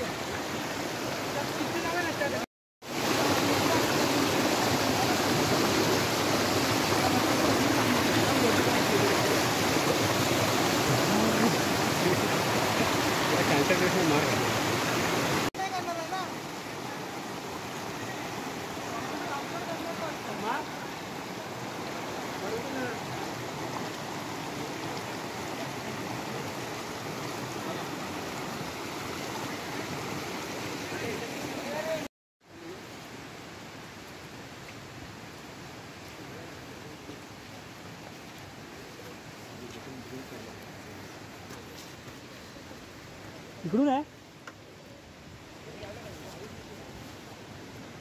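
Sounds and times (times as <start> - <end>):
stream rushing over rocks: 0.0 - 48.0.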